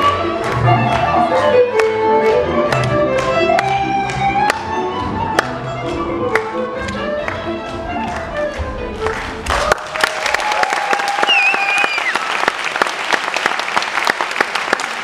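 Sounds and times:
folk dance music: 0.0s - 12.9s
audience applause: 8.0s - 15.0s.

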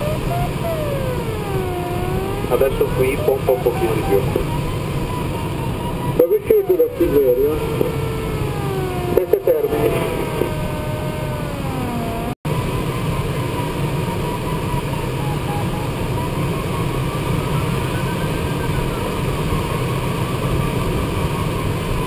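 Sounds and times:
variometer tone and beeps: 0.0s - 12.4s.

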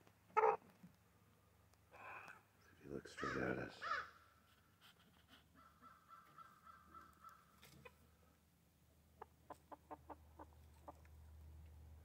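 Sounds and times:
chicken clucking: 0.3s - 0.6s, 6.8s - 8.0s, 9.2s - 11.1s.

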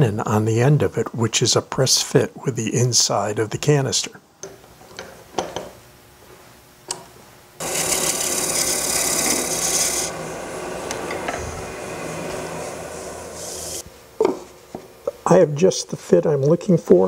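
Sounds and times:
turning tool cutting wood hiss: 7.6s - 13.8s
lathe humming: 7.6s - 13.9s.

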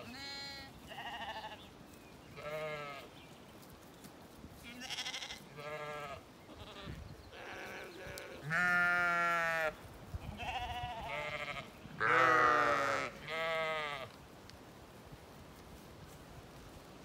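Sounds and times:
sheep and lambs bleating: 0.0s - 1.7s, 2.3s - 3.2s, 4.6s - 14.2s.

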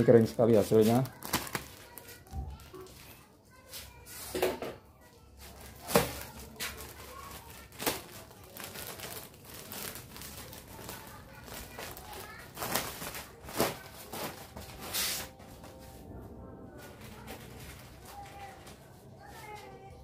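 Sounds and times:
plastic bag crinkling: 0.0s - 3.0s, 5.4s - 15.5s.

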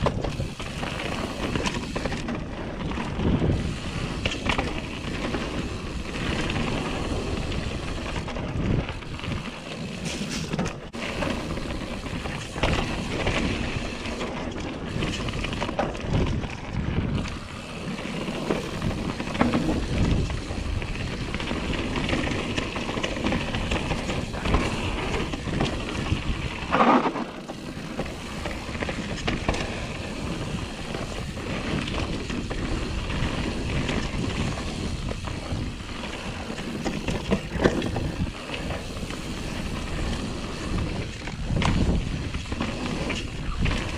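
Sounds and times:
bike knocking and rattling: 0.0s - 43.9s
bike tyres rumbling over dirt: 0.0s - 43.9s
wind noise on microphone: 0.0s - 43.9s.

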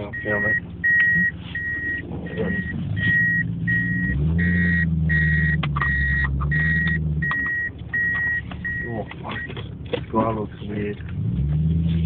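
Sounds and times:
electronic warning beeps: 0.0s - 9.5s
car engine running: 0.0s - 12.0s.

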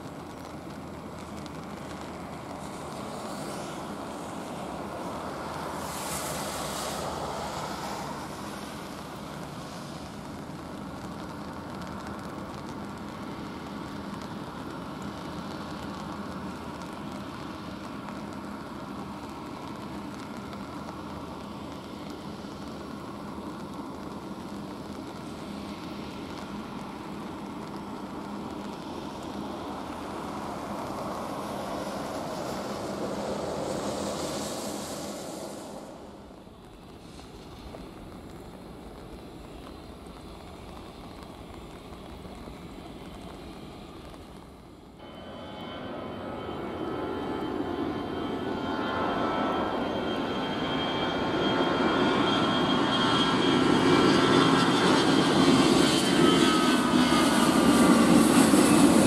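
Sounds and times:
jet engines humming: 0.0s - 59.0s
brief louder hiss: 32.6s - 36.4s.

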